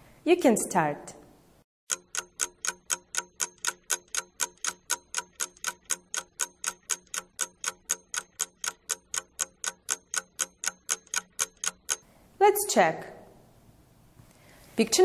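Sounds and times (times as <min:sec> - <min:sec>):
clock ticking: 0:01.9 - 0:12.0.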